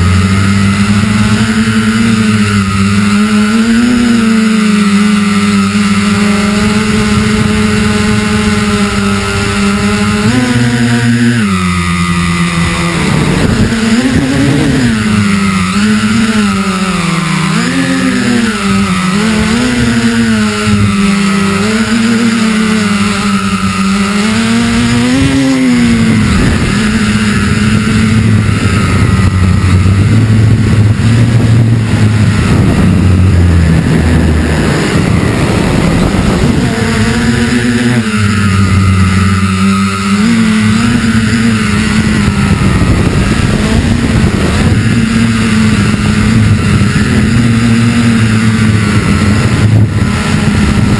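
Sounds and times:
drone motors whining: 0:00.0 - 0:50.9
rushing noise: 0:11.2 - 0:50.9.

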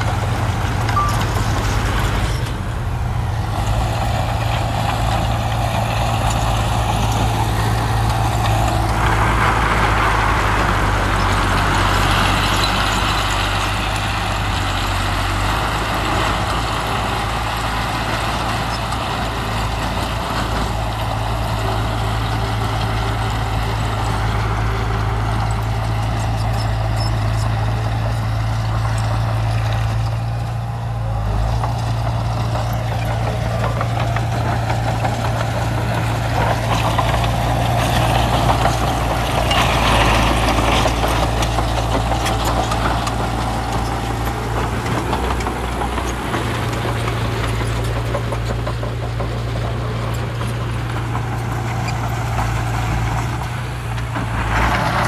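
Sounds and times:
heavy diesel engine running: 0:00.0 - 0:55.0.

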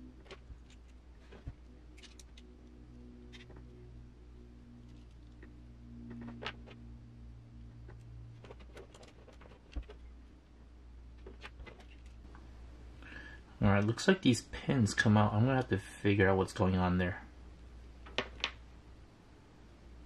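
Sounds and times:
low hum: 0:00.0 - 0:20.0
small parts clicking: 0:01.9 - 0:02.7.

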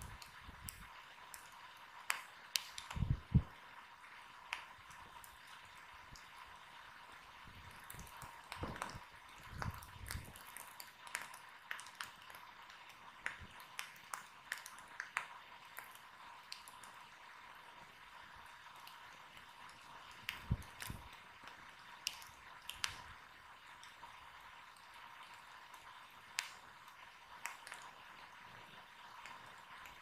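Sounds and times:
fire snapping and popping: 0:00.0 - 0:30.0
wood fire crackling: 0:00.0 - 0:30.0.

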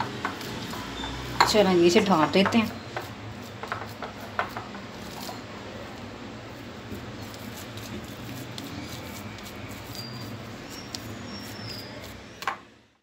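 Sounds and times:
hands kneading dough: 0:06.5 - 0:12.5.

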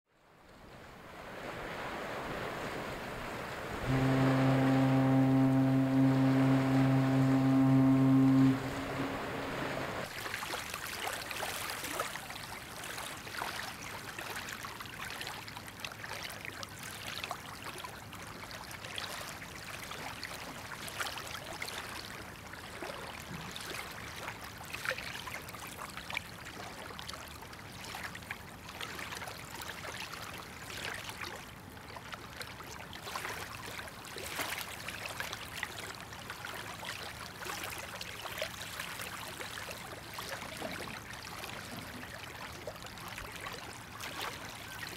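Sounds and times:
small waves lapping on shore: 0:00.2 - 0:44.9.

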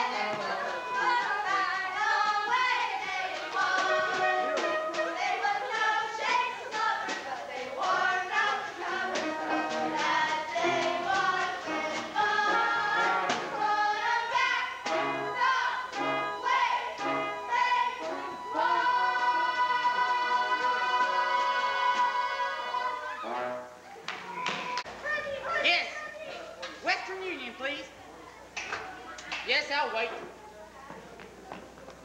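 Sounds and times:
chorus of young voices singing: 0:00.0 - 0:23.6
instrumental accompaniment: 0:00.0 - 0:23.9.

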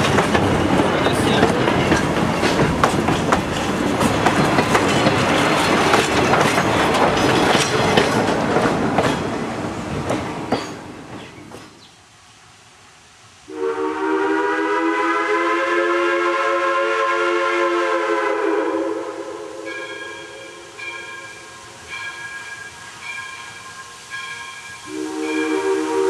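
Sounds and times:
passing train wheel clicks: 0:00.0 - 0:11.9
steam locomotive whistle: 0:13.5 - 0:26.0
crossing bell ringing: 0:19.6 - 0:25.9.

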